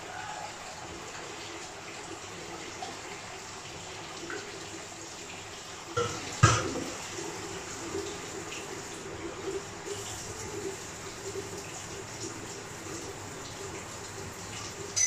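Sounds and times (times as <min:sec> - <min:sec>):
tap water running into sink: 0:01.0 - 0:15.0
dishes knocking: 0:06.0 - 0:06.9.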